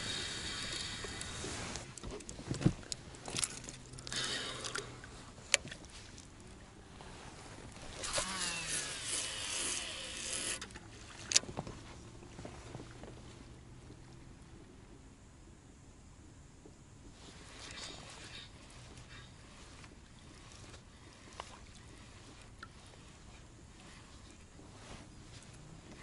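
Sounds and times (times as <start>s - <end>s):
fishing reel spool whirring: 0.0s - 2.0s, 7.7s - 11.4s
fishing tackle clicks and knocks: 1.0s - 4.8s.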